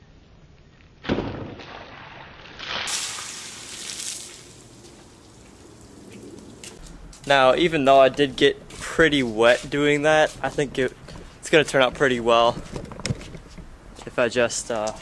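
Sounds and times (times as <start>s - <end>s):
water splashing over car: 2.6s - 6.6s.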